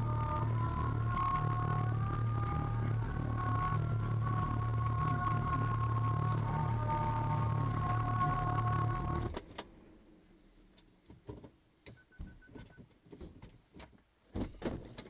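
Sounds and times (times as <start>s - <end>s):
music: 0.0s - 9.3s
small knocks and rattles: 12.6s - 15.0s.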